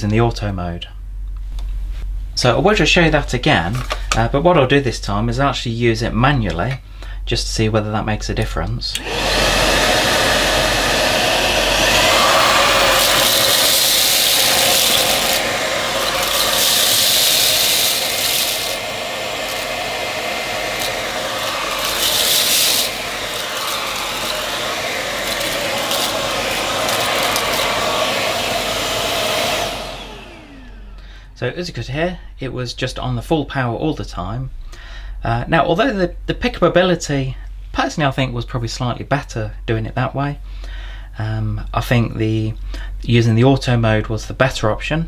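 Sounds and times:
vacuum winding down whine: 0:08.9 - 0:31.2
vacuum sucking up rice: 0:09.0 - 0:31.0
cordless vacuum running: 0:09.0 - 0:31.2.

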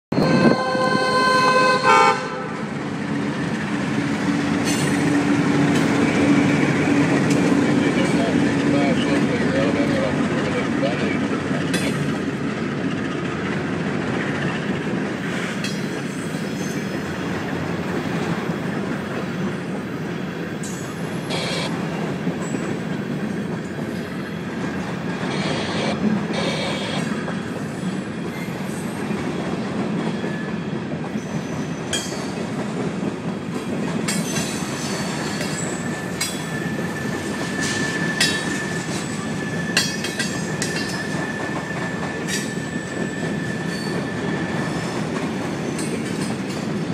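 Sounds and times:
train wheels rumbling on rail: 0:00.1 - 0:46.9
clanks and clicks: 0:11.6 - 0:12.2
high wheel squeal: 0:25.2 - 0:29.0, 0:30.1 - 0:32.1, 0:34.5 - 0:46.1.

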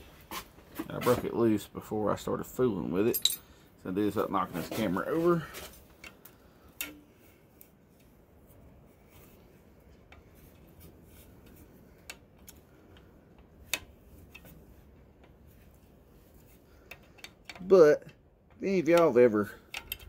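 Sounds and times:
low steady background: 0:00.0 - 0:20.0
faint wrench clicks: 0:18.9 - 0:20.0.

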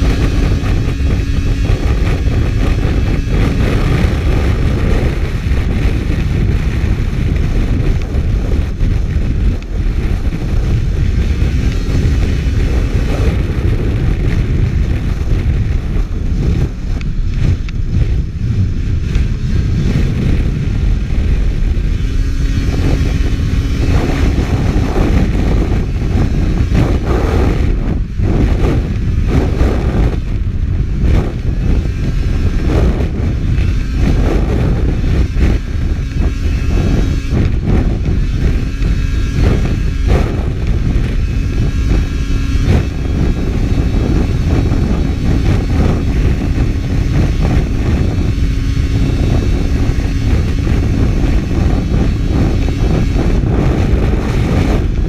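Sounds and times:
low rushing noise on microphone: 0:00.0 - 0:55.0
snowmobile engine drone: 0:00.0 - 0:55.0.

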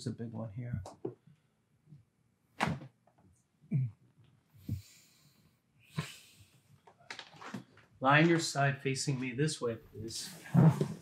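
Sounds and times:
person breathing: 0:04.6 - 0:06.7
neck joints cracking: 0:06.8 - 0:08.5.

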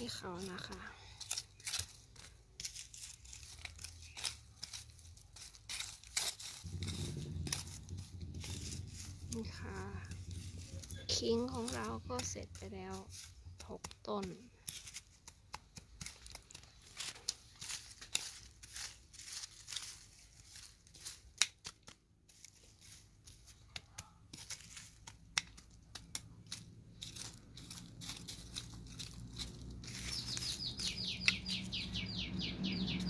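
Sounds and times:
trowel scraping dry soil: 0:00.0 - 0:31.8.

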